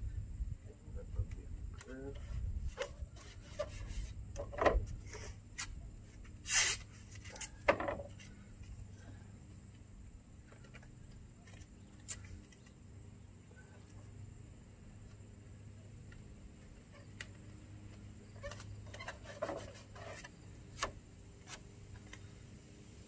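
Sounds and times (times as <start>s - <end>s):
tape ripping: 6.4s - 7.5s.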